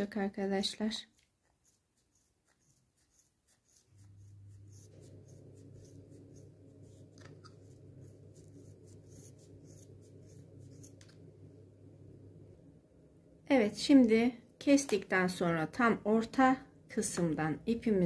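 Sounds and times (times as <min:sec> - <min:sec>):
steady low hum: 0:03.8 - 0:14.6.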